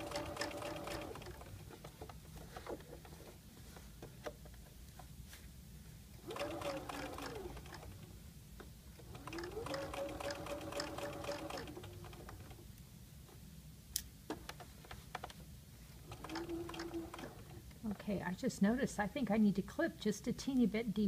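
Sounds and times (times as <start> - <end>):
electric sewing machine stitching: 0.0 - 1.7, 6.2 - 8.0, 9.1 - 12.6, 16.1 - 17.6.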